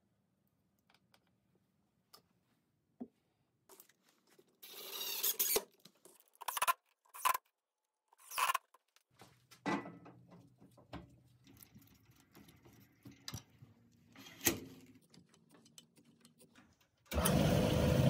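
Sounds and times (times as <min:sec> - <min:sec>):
cordless drill driving screws: 0:04.6 - 0:05.7.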